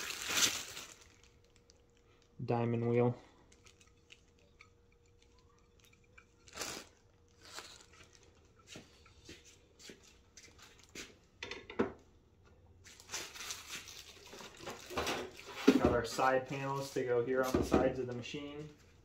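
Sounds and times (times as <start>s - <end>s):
plastic packaging rustling: 0.0s - 2.4s, 3.3s - 8.6s, 12.8s - 17.6s.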